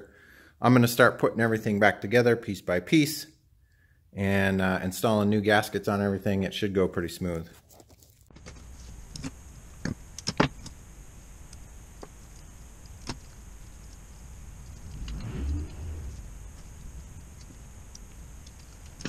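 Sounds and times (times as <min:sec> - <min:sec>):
low rumble: 0:13.5 - 0:19.0.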